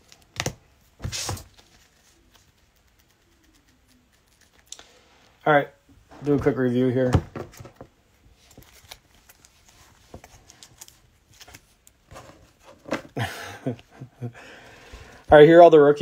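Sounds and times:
trading cards rustling and clicking: 6.4 - 13.1.

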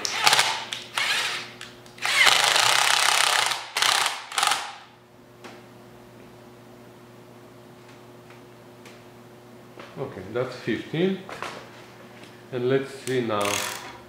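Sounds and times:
cordless drill running: 0.1 - 4.8.

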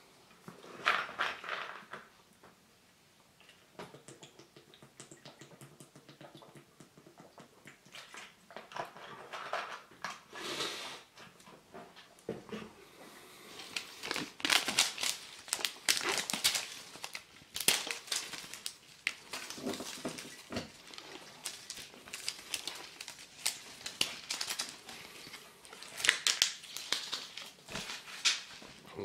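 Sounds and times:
plastic packaging crinkling: 13.6 - 28.8.

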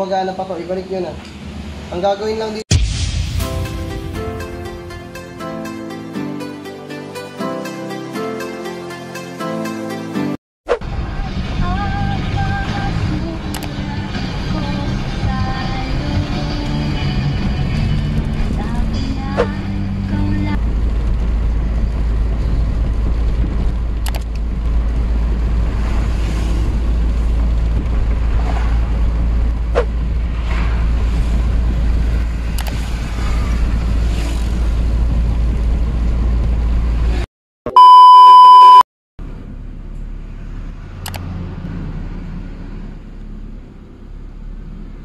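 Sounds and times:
car road and engine rumble: 0.0 - 2.8, 10.7 - 45.0
loud electronic beep: 37.7 - 38.8.

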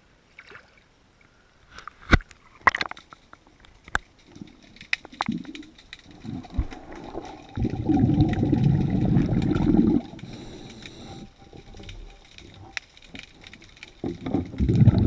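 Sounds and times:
faint clicks and knocks: 1.7 - 15.0
diver exhaling bubbles underwater: 6.3 - 10.4, 14.2 - 15.0.

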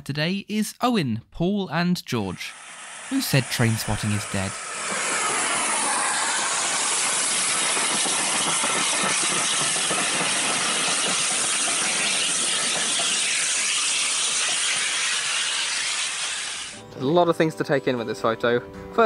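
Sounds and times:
steam locomotive hissing: 2.3 - 16.8
carriage wheels rattling on rails: 4.8 - 15.8.

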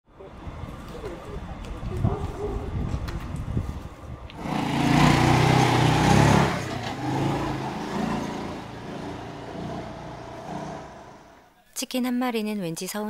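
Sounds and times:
vehicle driving past: 4.4 - 11.5.

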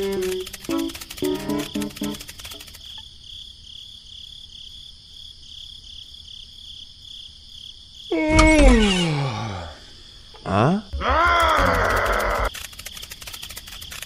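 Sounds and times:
quick stepped notes with rattle: 0.0 - 3.0
crickets chirring: 0.0 - 14.0.

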